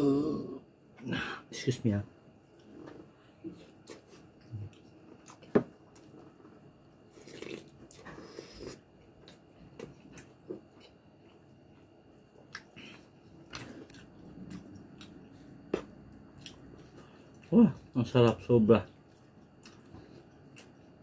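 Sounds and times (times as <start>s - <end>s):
chewing and mouth smacking: 9.2s - 17.5s, 18.1s - 21.0s.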